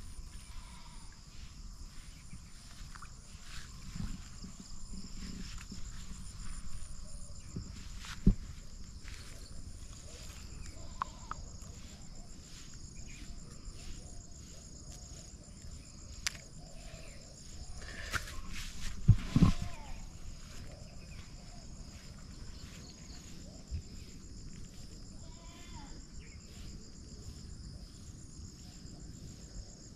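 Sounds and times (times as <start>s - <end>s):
insect chorus trilling: 0.0s - 29.9s.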